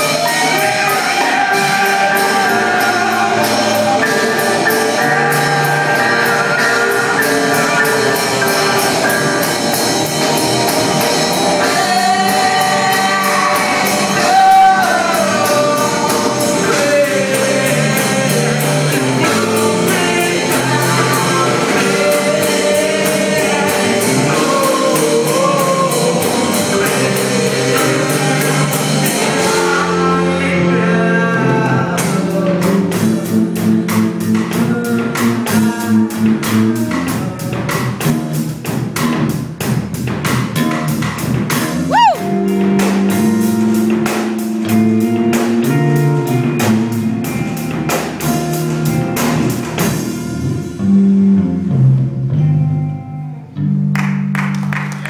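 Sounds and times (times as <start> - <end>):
person singing: 0.0 - 37.8, 41.9 - 42.6
rock band playing live: 0.0 - 55.0.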